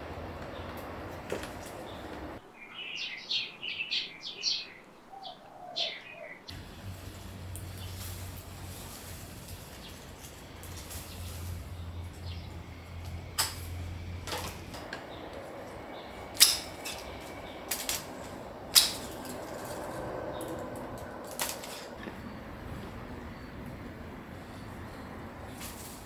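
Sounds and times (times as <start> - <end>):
pruning shears snipping stems: 13.0 - 22.1.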